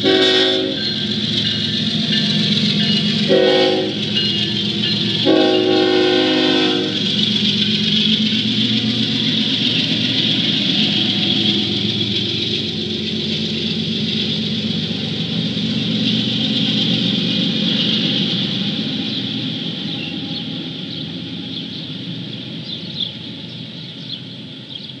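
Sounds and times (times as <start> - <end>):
freight locomotives rumbling past: 0.0 - 25.0
bird chirps: 18.9 - 25.0.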